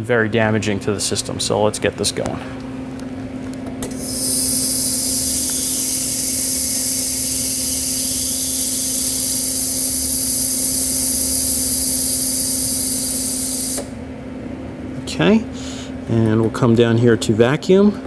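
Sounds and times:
machine humming: 0:00.8 - 0:16.2
gas venting hiss: 0:03.8 - 0:14.0.

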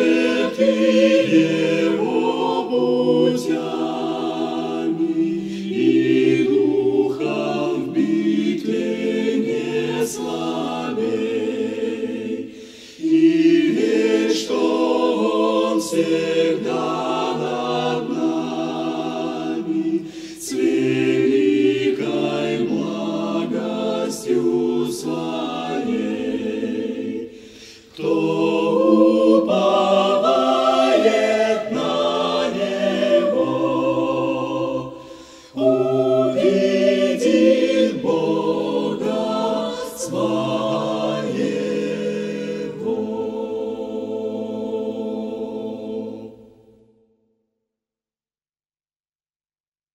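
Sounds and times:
choir singing: 0:00.0 - 0:46.9
short breaths: 0:12.5 - 0:13.0, 0:20.0 - 0:20.4, 0:27.3 - 0:28.0, 0:35.0 - 0:35.6.

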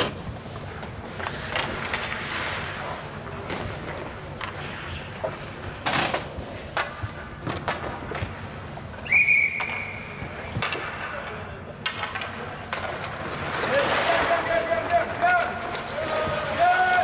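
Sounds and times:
hockey sticks and puck clacking: 0:00.0 - 0:17.0
referee's whistle: 0:09.0 - 0:10.1.

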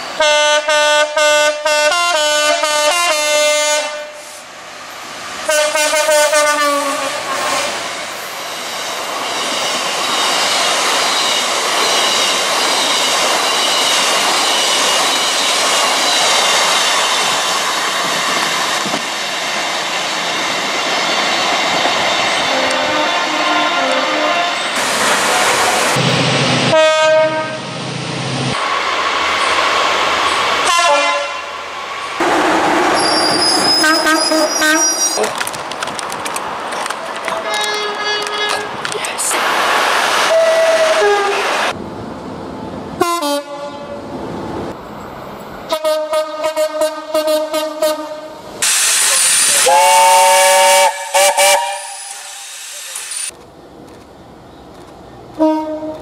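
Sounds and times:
train rumbling: 0:00.0 - 0:56.0
steam locomotive whistle: 0:00.2 - 0:04.4, 0:05.5 - 0:07.9, 0:22.5 - 0:24.7, 0:26.7 - 0:27.6, 0:30.6 - 0:31.5, 0:33.0 - 0:35.2, 0:40.3 - 0:41.5, 0:45.7 - 0:53.3, 0:55.4 - 0:56.0
train horn blasts: 0:00.2 - 0:04.4, 0:05.5 - 0:07.9, 0:22.5 - 0:24.6, 0:26.7 - 0:27.6, 0:30.6 - 0:31.5, 0:33.8 - 0:34.9, 0:37.4 - 0:38.7, 0:40.3 - 0:41.4, 0:43.0 - 0:44.0, 0:45.7 - 0:48.4, 0:49.6 - 0:52.3, 0:55.4 - 0:56.0
hiss of escaping steam: 0:04.1 - 0:04.6, 0:48.6 - 0:53.4.

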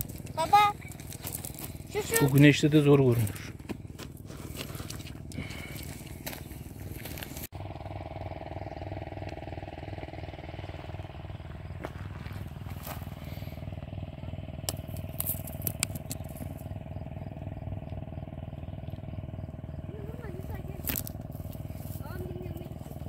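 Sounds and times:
pebbles clicking together: 0:00.0 - 0:02.4, 0:14.7 - 0:16.6
pulsing mechanical hum: 0:00.0 - 0:23.0.

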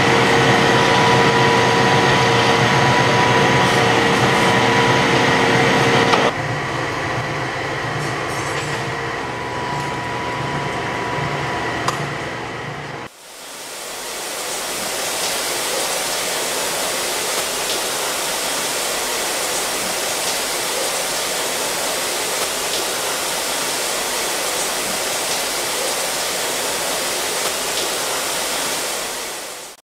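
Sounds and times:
water rushing in tank: 0:13.1 - 0:29.8.

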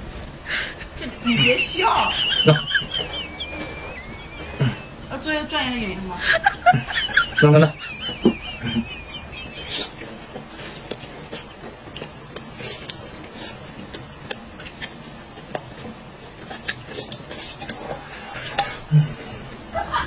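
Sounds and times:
person chewing food: 0:07.9 - 0:19.7
soft mouth smacks and clicks: 0:10.8 - 0:15.8.

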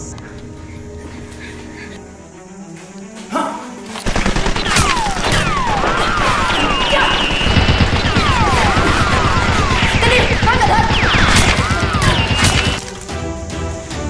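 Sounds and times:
falling whines: 0:04.0 - 0:13.0
rapid automatic gunfire: 0:04.0 - 0:13.0.

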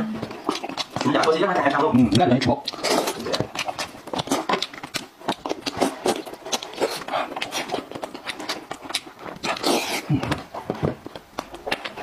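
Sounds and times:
wet chewing and lip-smacking: 0:00.0 - 0:12.0.

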